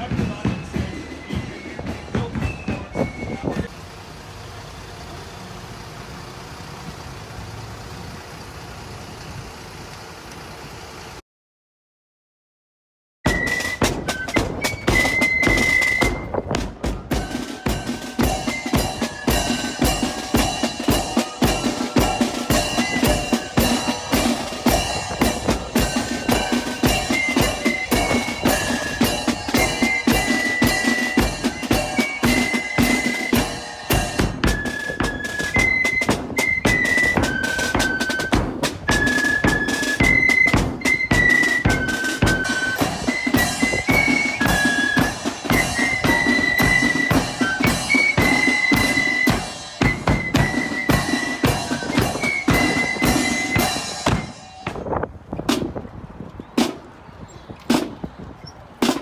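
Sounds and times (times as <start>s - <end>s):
flute tune: 0.0s - 3.7s, 13.2s - 54.9s
high melody line: 0.0s - 3.7s, 13.3s - 54.9s
marching snare and bass drums: 0.0s - 3.8s, 13.3s - 57.0s, 57.7s - 59.0s.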